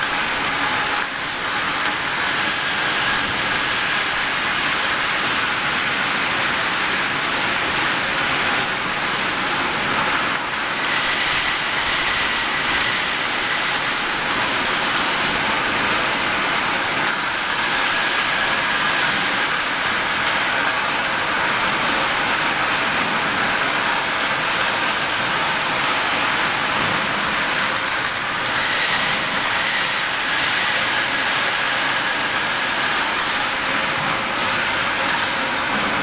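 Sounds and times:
rolling mill machinery running: 0.0 - 36.0.

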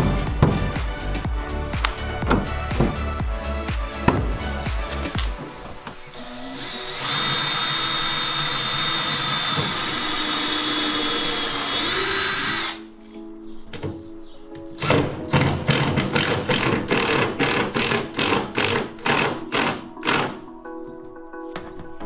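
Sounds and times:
drill motor whine: 6.0 - 12.9.

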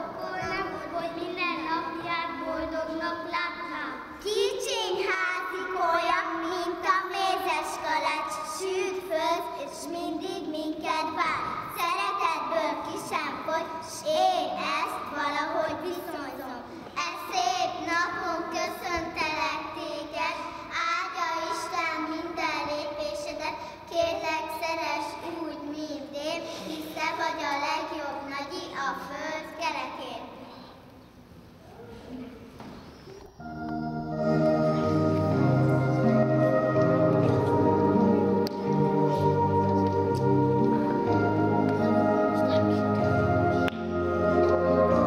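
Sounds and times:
young children singing: 0.0 - 23.4.

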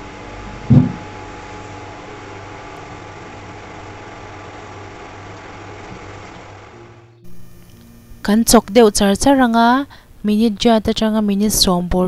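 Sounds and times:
fan hum and hiss: 0.0 - 12.0
loud low thump: 0.5 - 1.2.

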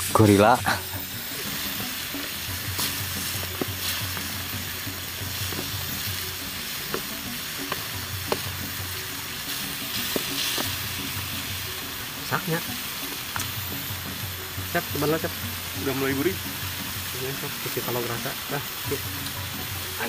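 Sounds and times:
mushrooms sizzling in a pan: 0.0 - 20.0
utensil clicking against pan: 5.4 - 8.6, 9.4 - 10.9, 13.1 - 13.6.

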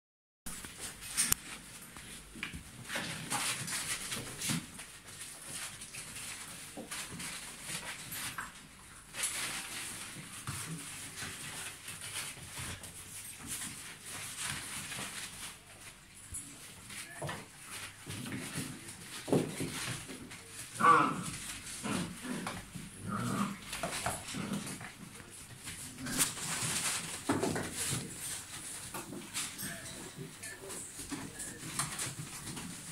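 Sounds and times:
scuffling and rustling: 0.5 - 32.9
puppies growling: 18.0 - 30.0.

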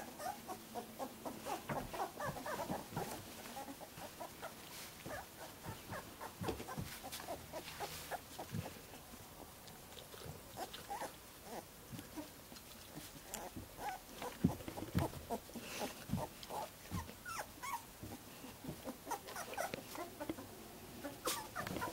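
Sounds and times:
puppies whimpering: 0.0 - 8.8, 13.3 - 17.9, 18.8 - 20.4, 21.0 - 21.9.

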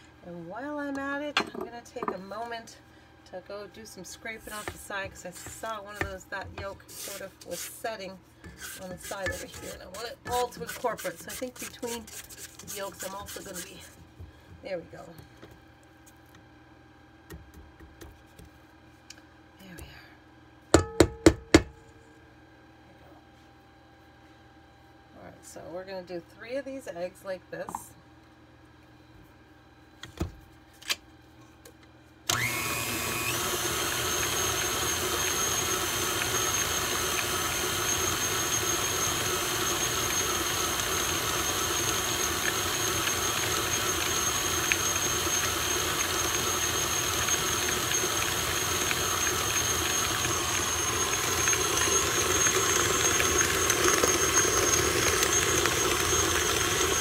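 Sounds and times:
stand mixer motor running: 32.3 - 57.0.

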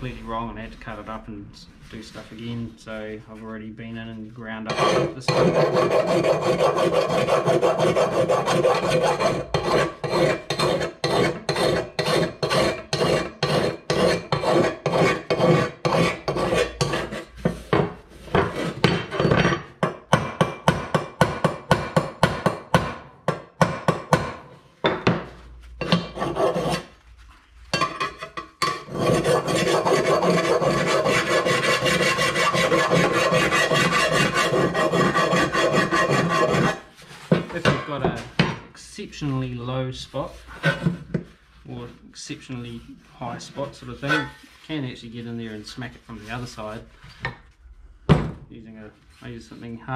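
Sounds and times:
hand file rasping on steel: 4.7 - 18.9, 25.8 - 26.9, 27.8 - 36.9.

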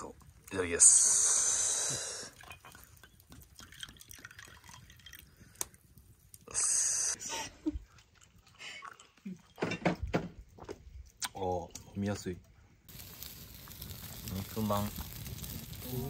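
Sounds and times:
splashing hiss: 0.8 - 2.4, 6.4 - 7.2, 12.9 - 16.0
liquid trickling into cup: 2.2 - 5.8.

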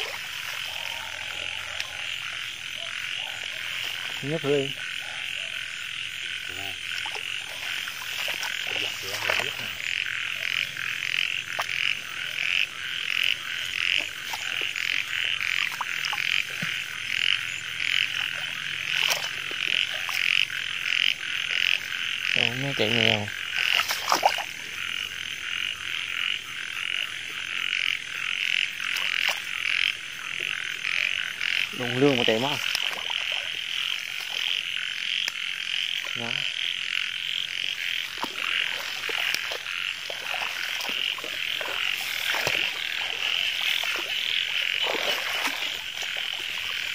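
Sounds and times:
knocks and splashes in water: 0.0 - 0.8, 6.9 - 9.8, 18.2 - 20.2, 23.6 - 24.5, 38.0 - 46.9
chorus of frogs croaking: 0.0 - 46.9.

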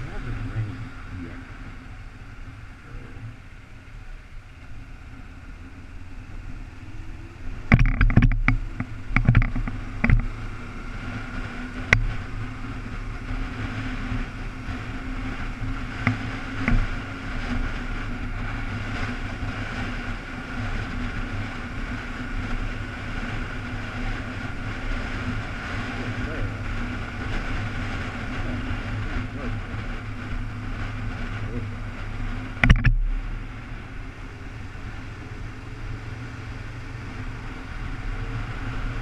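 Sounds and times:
motorcycle engine running: 0.0 - 39.0
sharp knocks: 32.6 - 33.0.

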